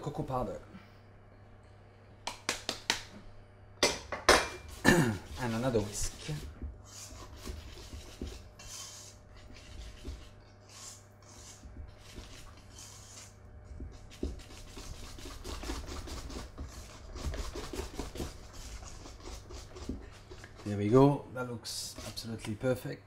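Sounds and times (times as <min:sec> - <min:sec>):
whisk beating batter in metal bowl: 0:05.3 - 0:22.4.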